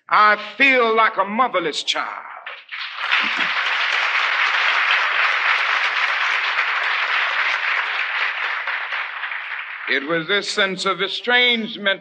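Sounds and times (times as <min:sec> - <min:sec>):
crowd applauding: 0:02.4 - 0:11.0.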